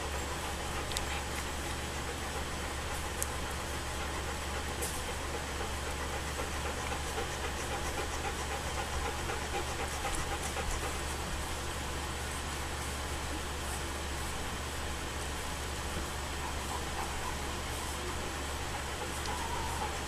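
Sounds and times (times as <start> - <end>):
dog panting: 0.0 - 11.8, 16.2 - 20.0
low hum and hiss: 0.0 - 20.0.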